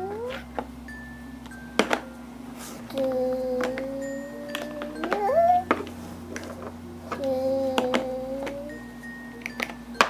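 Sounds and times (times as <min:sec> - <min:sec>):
toddler whining: 0:00.0 - 0:00.5, 0:02.9 - 0:05.9, 0:07.1 - 0:08.8.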